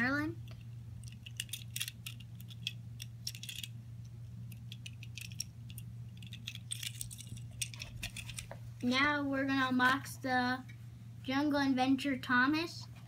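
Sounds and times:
low background hum: 0.0 - 13.0
toy train clicking and rattling: 1.0 - 3.7, 4.5 - 8.5.

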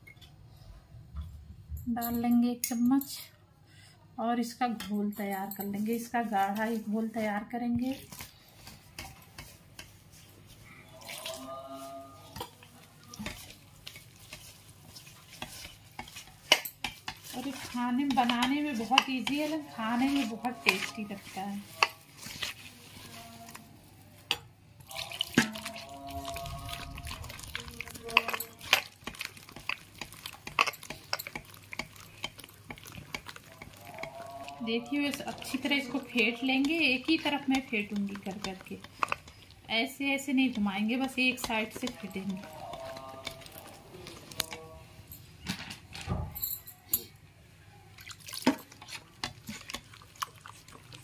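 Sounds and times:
batter scraping and squishing: 6.4 - 24.1, 24.9 - 44.8.

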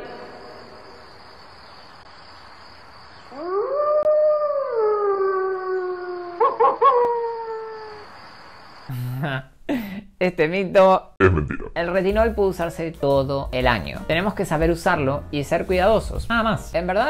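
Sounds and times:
dog howling: 3.3 - 8.0.

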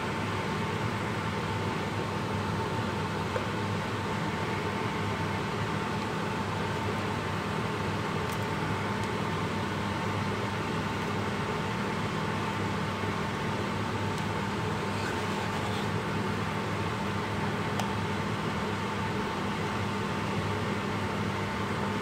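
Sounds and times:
kitchen fan hum and hiss: 0.0 - 22.0.

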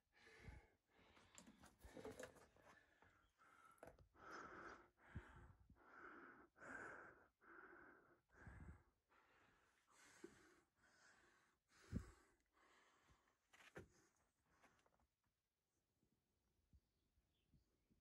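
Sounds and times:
faint close breathing: 0.2 - 14.8.

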